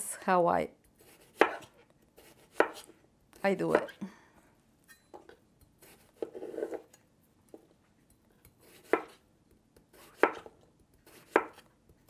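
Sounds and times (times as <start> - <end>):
knife slicing on cutting board: 1.0 - 2.9, 5.8 - 6.9, 8.6 - 9.2, 9.9 - 11.7.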